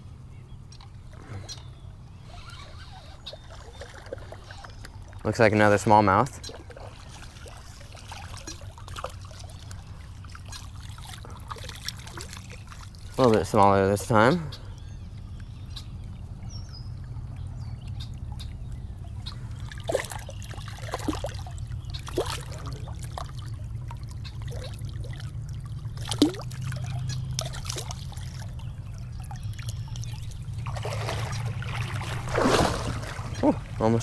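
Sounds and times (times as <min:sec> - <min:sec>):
creek water trickling: 0:00.0 - 0:34.0
footsteps splashing in water: 0:30.6 - 0:33.8.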